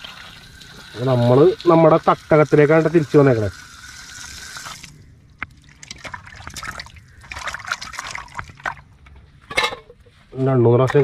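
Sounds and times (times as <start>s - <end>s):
water running from a pipe: 0.0s - 8.8s
water sloshing in a bowl: 4.6s - 9.9s
hands washing chicken: 5.7s - 8.9s.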